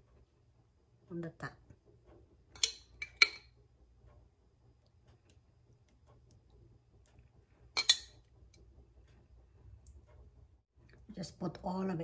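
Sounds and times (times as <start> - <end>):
metal spoon clinking on glass jar: 7.8 - 8.2.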